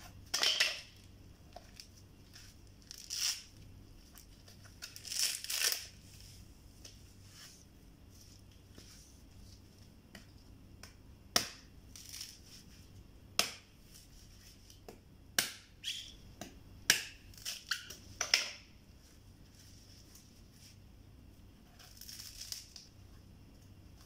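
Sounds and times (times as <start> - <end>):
husk fibres tearing: 2.8 - 3.6, 4.5 - 6.0
coconut fibres snapping: 4.8 - 5.9, 10.1 - 12.4, 13.3 - 13.7, 14.7 - 15.7, 16.3 - 18.6, 21.8 - 22.9.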